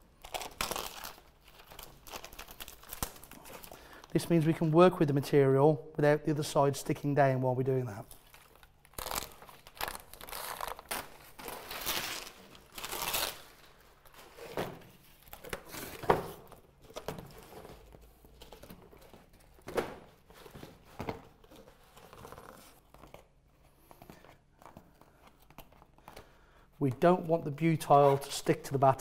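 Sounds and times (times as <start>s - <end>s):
plastic strip peeling and crinkling: 0.2s - 3.8s, 8.1s - 14.4s.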